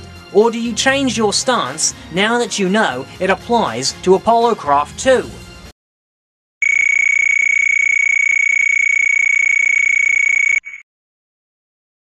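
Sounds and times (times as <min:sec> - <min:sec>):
high-pitched electronic beep: 0:06.6 - 0:10.8.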